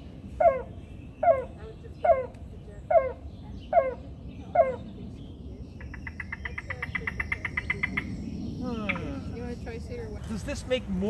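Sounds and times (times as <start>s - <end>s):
bird rapid trill: 5.7s - 9.1s.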